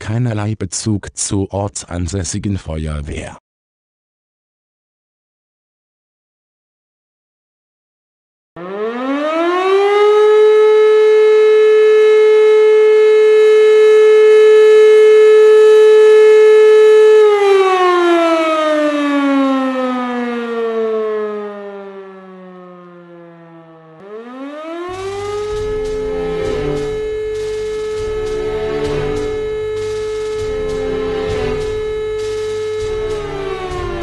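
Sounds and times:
motor-driven fire siren winding: 8.6 - 34.0.

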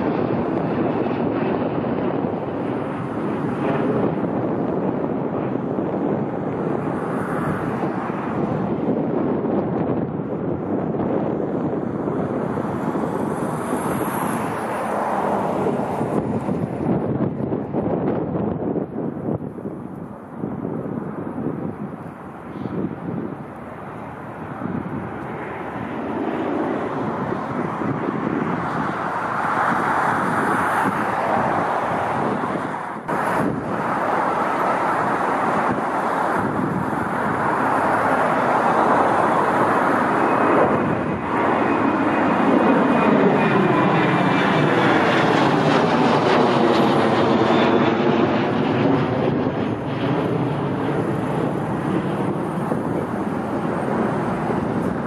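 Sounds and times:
airliner passing overhead: 0.0 - 55.0
faint high engine whine: 0.0 - 55.0.

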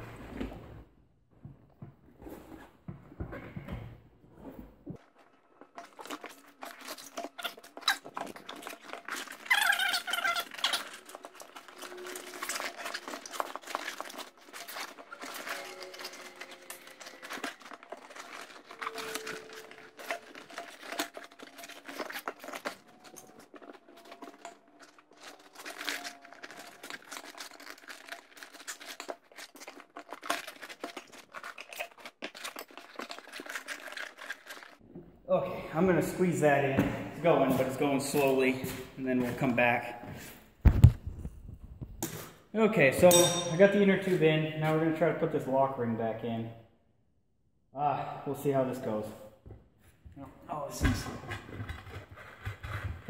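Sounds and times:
rubber inner tube rustling: 4.8 - 34.8
rubber squeaks: 5.9 - 34.8.

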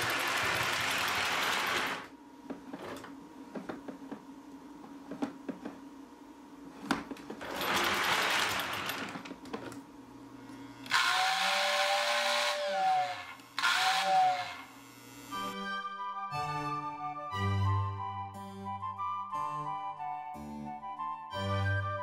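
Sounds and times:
toy train motor whirring: 0.0 - 2.1, 10.9 - 14.7
steady hum: 1.9 - 7.4
toy train whistle: 10.9 - 14.7.

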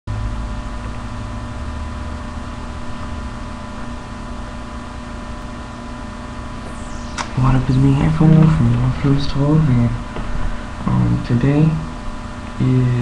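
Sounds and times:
electrical hum and hiss: 0.1 - 13.0
low rumble: 6.3 - 12.4.

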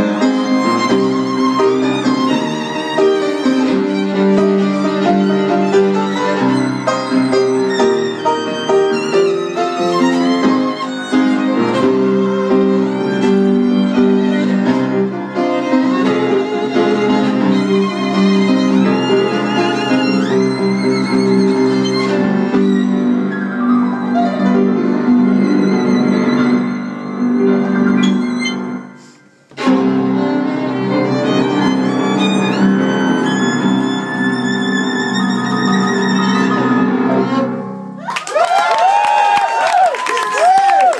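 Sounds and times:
violin playing with vibrato: 0.0 - 38.0
piano accompaniment: 0.0 - 38.2
audience cheering: 38.0 - 40.9.

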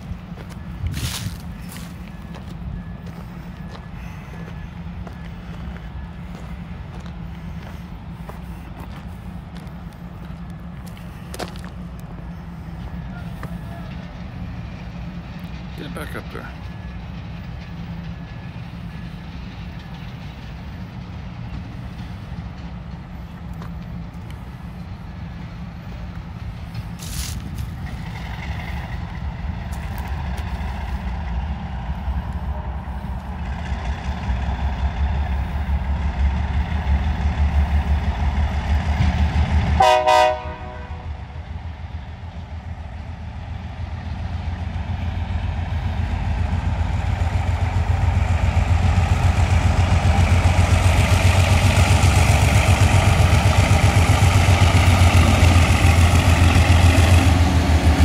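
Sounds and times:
diesel locomotive engine rumbling: 0.0 - 58.0
locomotive horn toot: 39.8 - 41.4.

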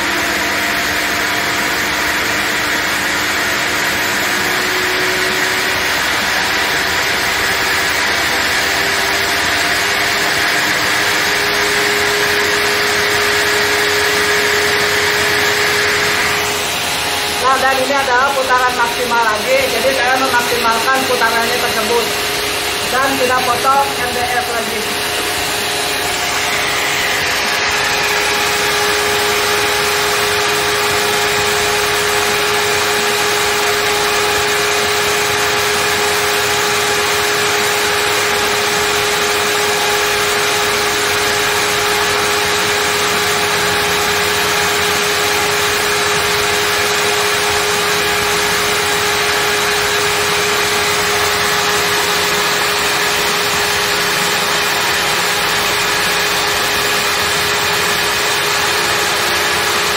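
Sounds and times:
table saw motor whining: 0.0 - 59.9.

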